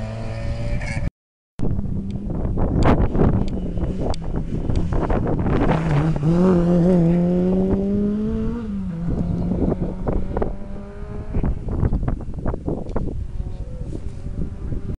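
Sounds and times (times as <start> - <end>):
wind buffeting microphone: 1.6 - 15.0
rally car accelerating past: 3.7 - 11.8.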